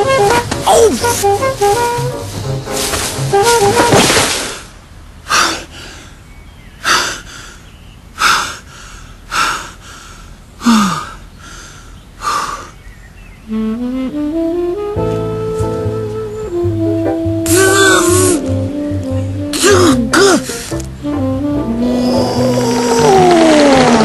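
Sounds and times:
background music rising notes: 0:00.0 - 0:04.0, 0:13.5 - 0:24.0
man breathing hard: 0:06.8 - 0:12.8
man groaning: 0:17.5 - 0:18.4, 0:19.6 - 0:20.5.

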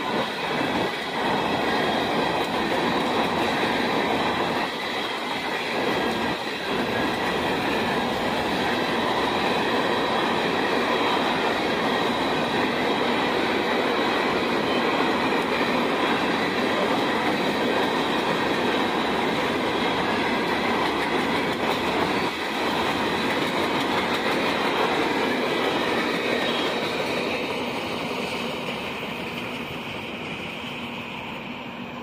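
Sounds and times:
freight train wheels clattering: 0:00.0 - 0:31.6.

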